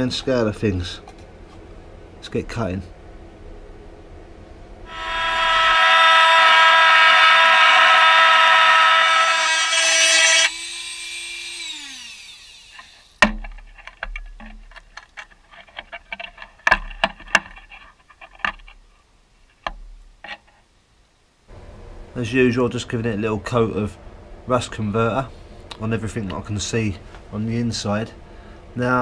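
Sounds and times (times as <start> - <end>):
angle grinder whine: 4.9 - 13.2.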